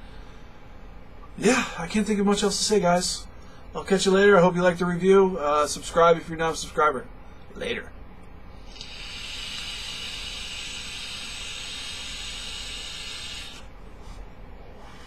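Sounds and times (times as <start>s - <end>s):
vape draw hiss: 8.7s - 13.7s.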